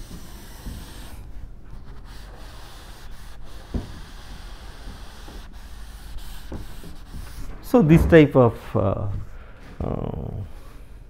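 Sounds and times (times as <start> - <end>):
duster rubbing on chalkboard: 0.0 - 8.5
low thump: 7.7 - 8.7.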